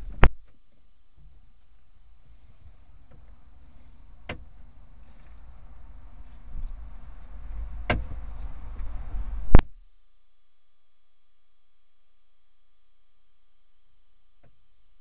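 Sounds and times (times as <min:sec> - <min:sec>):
low rumble in car cabin: 0:00.0 - 0:11.2.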